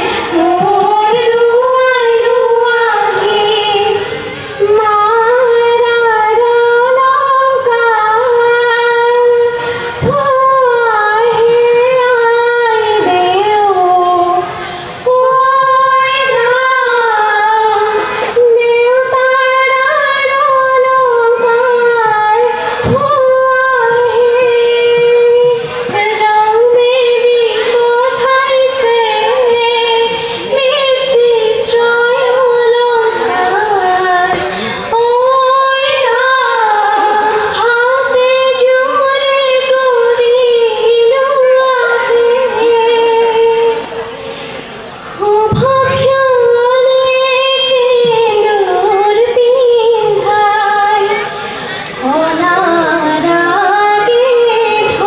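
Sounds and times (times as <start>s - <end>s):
women singing together: 45.2s - 55.0s.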